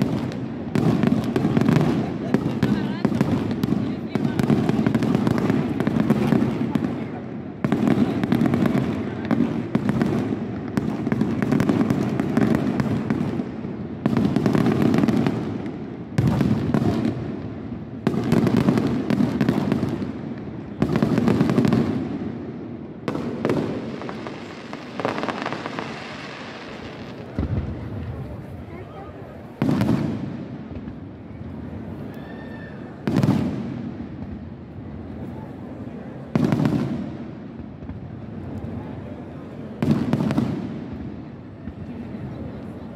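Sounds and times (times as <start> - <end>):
fireworks booming: 0.0 - 32.0, 32.9 - 42.9
fireworks crackling: 0.0 - 42.9.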